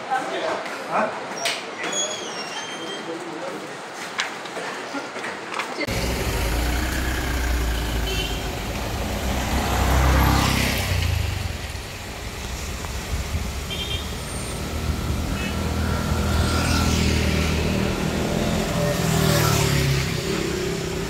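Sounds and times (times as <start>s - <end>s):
vehicle engine and road rumble: 5.8s - 21.0s.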